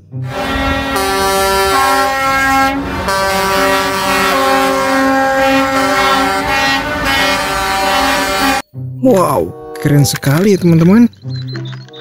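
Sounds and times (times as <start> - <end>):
low rumble of trucks: 0.0 - 8.6
truck air horns: 0.0 - 8.6.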